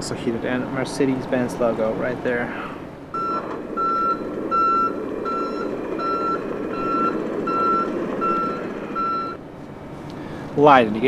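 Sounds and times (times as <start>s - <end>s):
diesel engine rumble: 0.0s - 11.0s
truck reversing alarm beeping: 3.1s - 9.4s.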